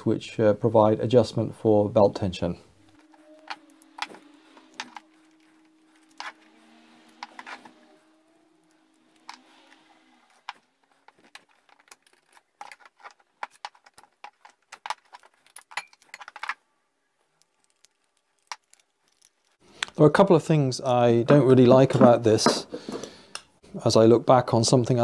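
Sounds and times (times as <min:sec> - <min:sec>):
metal parts clinking on a workbench: 0:10.4 - 0:16.6.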